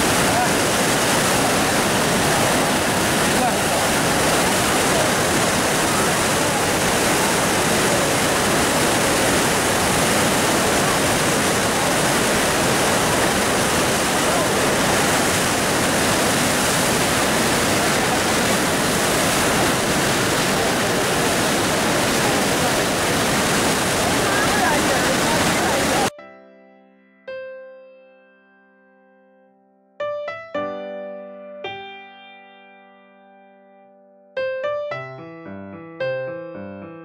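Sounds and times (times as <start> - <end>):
river rushing through rapids: 0.0 - 26.1.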